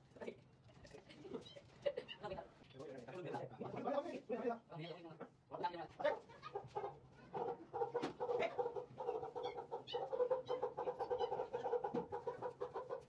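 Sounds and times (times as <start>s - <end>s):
fowl clucking: 6.5s - 13.0s.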